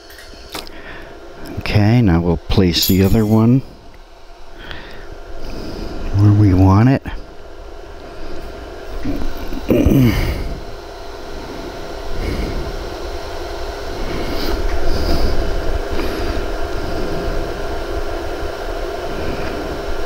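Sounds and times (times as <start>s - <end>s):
metal parts clicking: 2.8s - 3.6s.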